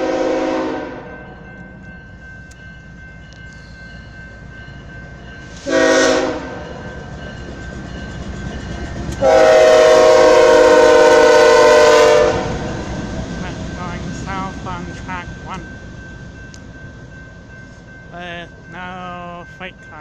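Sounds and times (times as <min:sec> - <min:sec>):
locomotive air horn blasts: 0:00.0 - 0:01.1, 0:05.6 - 0:06.7, 0:09.2 - 0:12.7
locomotive engine rumble: 0:00.0 - 0:20.0.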